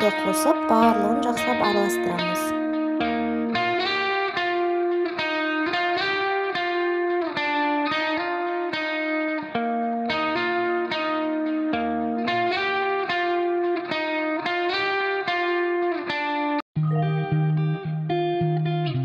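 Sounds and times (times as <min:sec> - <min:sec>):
plucked-string melody: 0:00.0 - 0:19.0.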